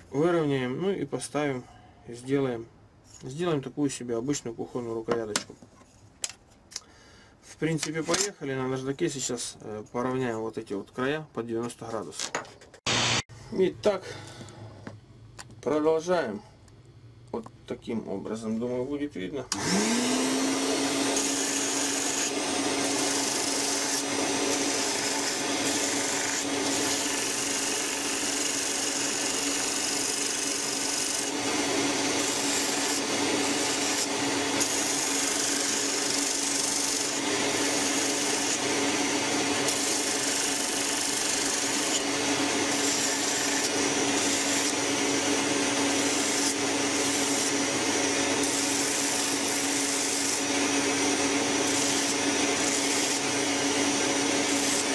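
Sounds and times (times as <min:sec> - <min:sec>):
bench grinder grinding wood: 0:19.5 - 0:54.9.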